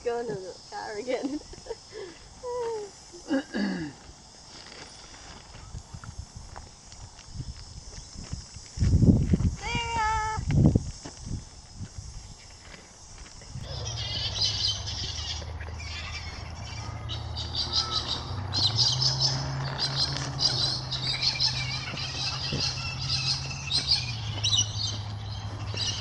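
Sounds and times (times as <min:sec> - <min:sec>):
birds chirping and twittering: 0:13.4 - 0:26.0.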